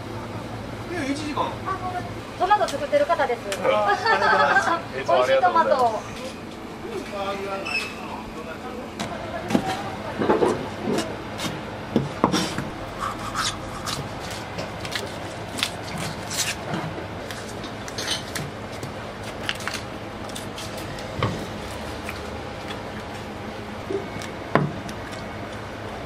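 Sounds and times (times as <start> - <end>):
steady background noise: 0.0 - 26.0.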